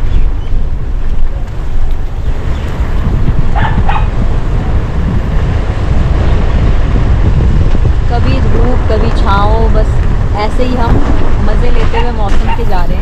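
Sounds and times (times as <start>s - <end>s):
low rumble: 0.0s - 13.0s
dog barking: 3.5s - 4.2s.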